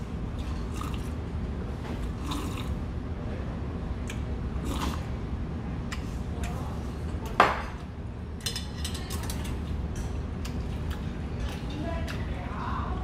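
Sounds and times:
steady low hum: 0.0 - 13.0
eating noises: 2.0 - 2.8, 4.0 - 5.1
man slurping broth: 2.2 - 2.8.

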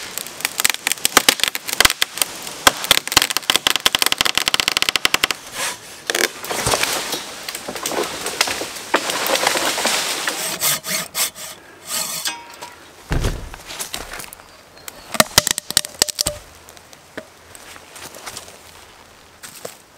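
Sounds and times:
wood splintering cracks: 0.0 - 5.4
wood fibres crackling: 0.0 - 19.9
saw rasping through wood: 10.3 - 12.3
low heavy thud: 13.1 - 13.7.

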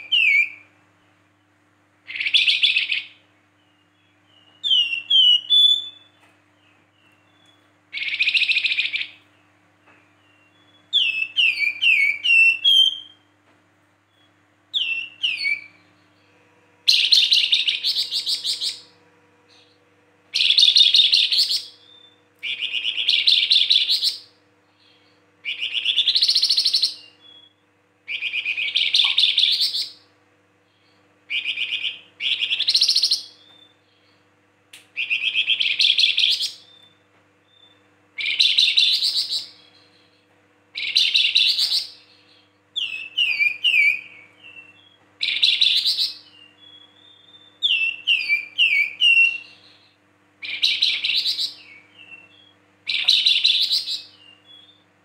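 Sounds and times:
songbird chattering trills: 28.1 - 30.1.

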